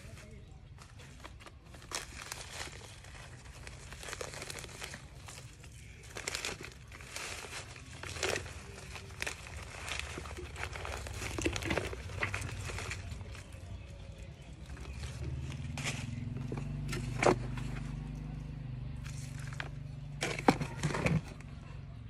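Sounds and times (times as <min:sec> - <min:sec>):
plastic and soil crinkling: 0:00.0 - 0:22.0.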